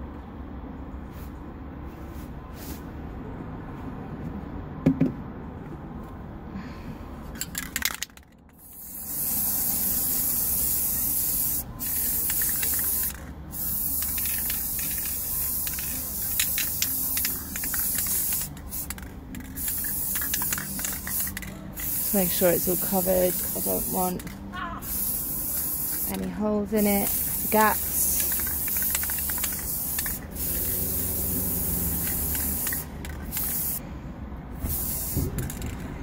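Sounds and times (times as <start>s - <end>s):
spray paint can hissing: 7.4s - 33.8s, 34.6s - 35.8s.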